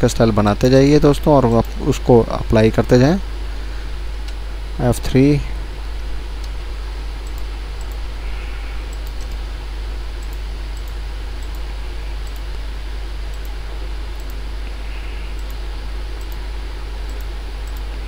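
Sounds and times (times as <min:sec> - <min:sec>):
low electrical hum: 0:00.0 - 0:18.0
steady hiss: 0:00.0 - 0:18.0
computer mouse clicks: 0:07.2 - 0:08.0, 0:08.9 - 0:09.4, 0:10.2 - 0:12.6, 0:13.3 - 0:14.4, 0:15.3 - 0:15.6, 0:16.2 - 0:16.4, 0:17.0 - 0:17.9.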